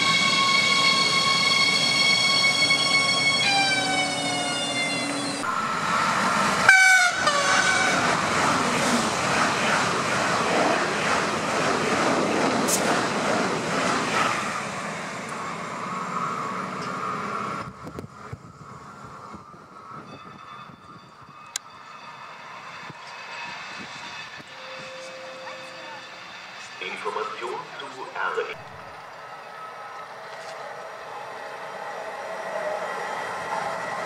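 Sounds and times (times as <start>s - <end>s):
train horn blast: 0.0s - 5.5s, 6.6s - 8.1s, 24.4s - 26.1s
electric train traction whine: 0.0s - 34.0s
high-speed train passing: 0.0s - 34.0s.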